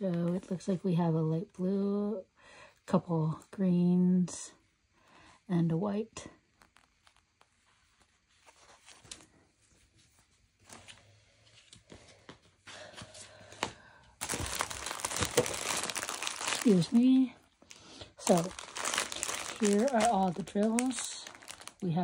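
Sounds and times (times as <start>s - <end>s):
cellophane wrap crinkling: 6.5s - 8.0s, 14.2s - 22.0s
paper rustling: 6.6s - 9.4s, 14.2s - 17.0s, 17.7s - 21.9s.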